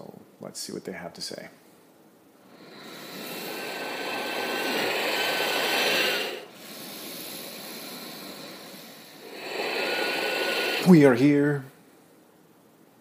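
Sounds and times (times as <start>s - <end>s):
man breathing deeply: 2.4s - 11.2s.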